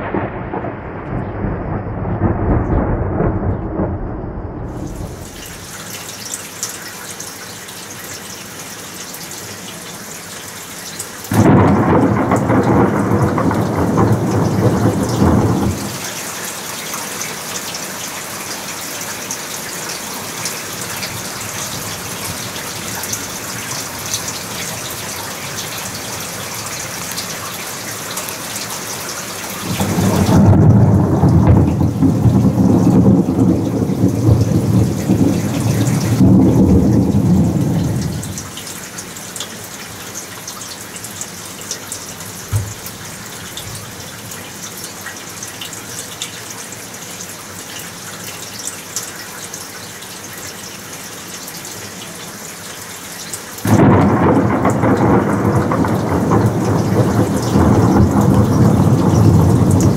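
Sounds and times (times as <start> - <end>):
thunder rumbling: 0.0 - 5.8, 11.3 - 16.2, 29.6 - 38.6, 53.7 - 59.9
heavy rain: 0.0 - 59.9.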